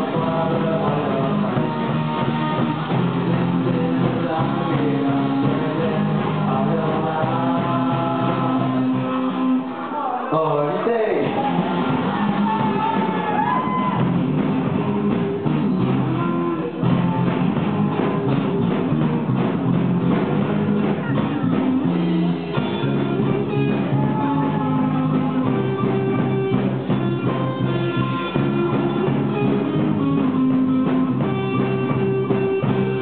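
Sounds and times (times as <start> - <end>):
drum kit: 0.0 - 9.7, 11.2 - 33.0
electric guitars: 0.0 - 10.0, 11.2 - 33.0.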